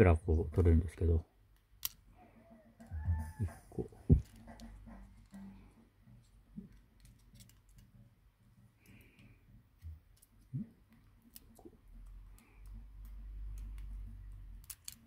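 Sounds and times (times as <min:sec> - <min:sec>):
electronic parts clicking and tapping: 0:02.9 - 0:08.0, 0:08.7 - 0:15.0.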